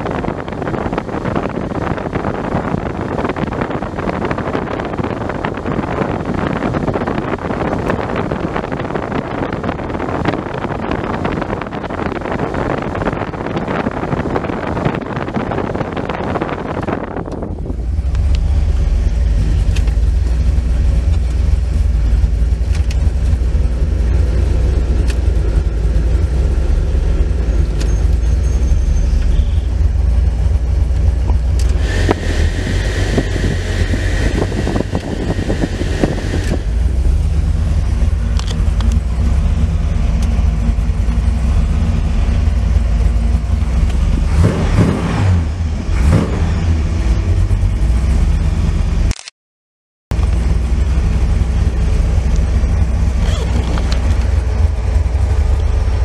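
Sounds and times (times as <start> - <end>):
car engine idling: 0.0 - 49.1, 50.1 - 56.0.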